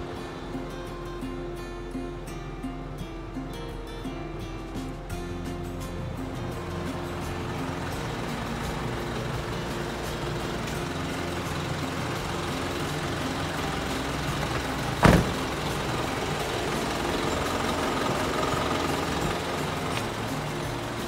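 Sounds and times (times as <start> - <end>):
diesel truck engine idling: 0.0 - 21.0
sharp thump: 15.0 - 15.6.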